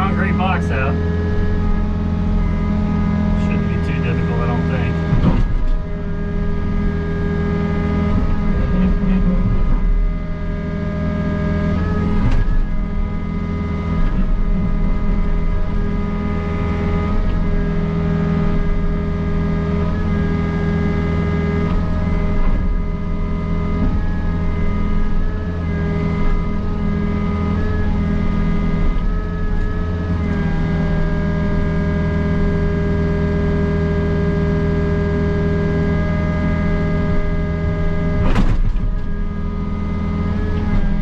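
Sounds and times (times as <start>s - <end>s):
hydraulics working: 0.0s - 10.8s
excavator diesel engine running: 0.0s - 41.0s.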